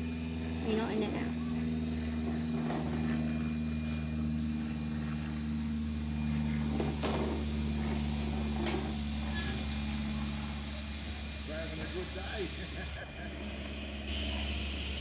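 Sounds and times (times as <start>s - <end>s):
train engine idling: 8.4s - 15.0s.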